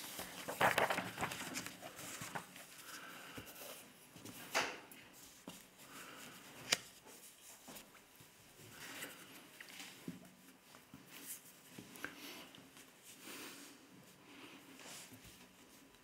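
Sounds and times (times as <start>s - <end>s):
paper rustling: 0.0s - 12.1s.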